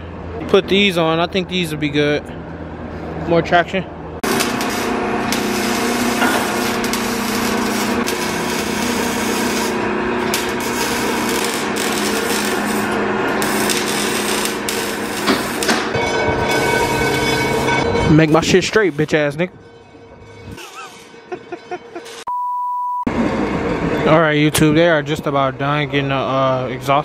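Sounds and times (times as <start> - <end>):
motor whine: 4.2 - 15.9
power tool grinding metal: 4.2 - 17.8, 20.5 - 22.3.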